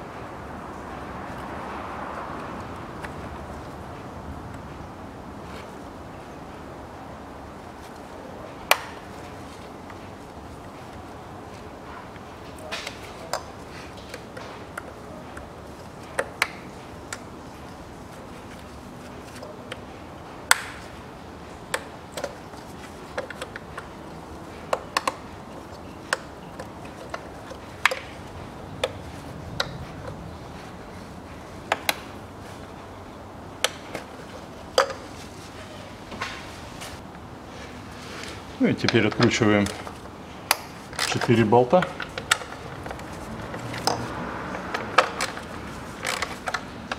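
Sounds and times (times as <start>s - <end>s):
hands handling wiring: 2.4s - 46.9s.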